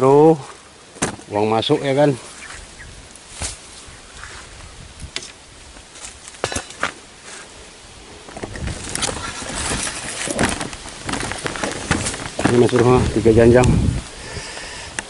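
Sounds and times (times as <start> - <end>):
footsteps crunching through undergrowth: 2.2 - 7.5, 8.2 - 14.1
sharp knocks and cracks: 8.3 - 13.1.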